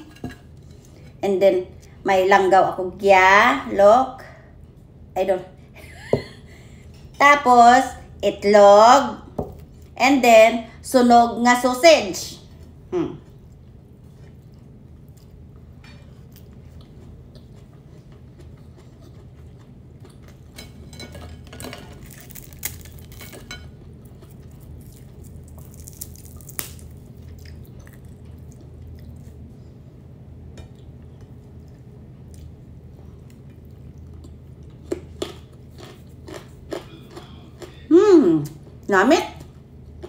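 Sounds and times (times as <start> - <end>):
low steady hum: 0.0 - 40.0
dried fish crackling as torn: 22.0 - 23.4, 24.5 - 27.5.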